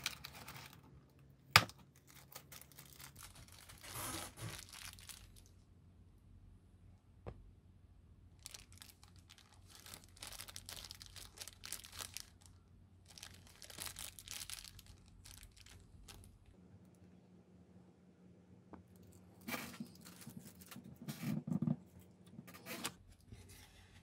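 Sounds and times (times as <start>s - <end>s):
plastic bag of screws crinkling: 2.0s - 5.5s, 8.4s - 16.5s.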